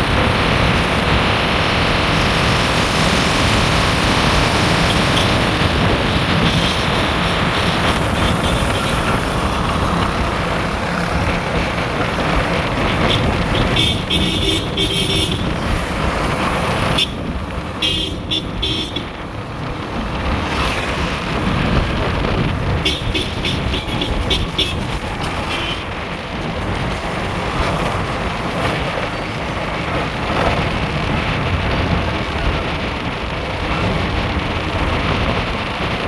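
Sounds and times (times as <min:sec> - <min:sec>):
road traffic noise: 0:00.0 - 0:36.0
vehicle horn toots: 0:13.0 - 0:15.5, 0:17.8 - 0:19.0, 0:22.8 - 0:24.8, 0:25.4 - 0:25.9.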